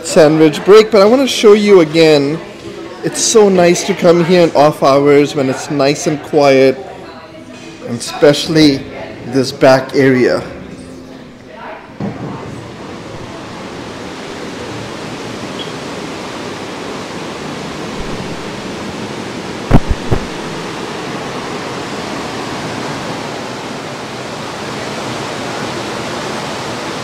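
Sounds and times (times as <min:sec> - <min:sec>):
ship's churning wake: 0:12.7 - 0:27.0
wind rushing: 0:17.9 - 0:20.9
short low thumps: 0:18.0 - 0:18.6, 0:19.7 - 0:20.6.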